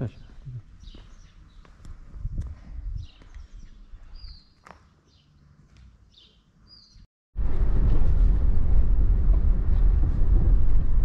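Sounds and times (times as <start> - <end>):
bird chirps: 3.0 - 5.5, 6.1 - 7.1.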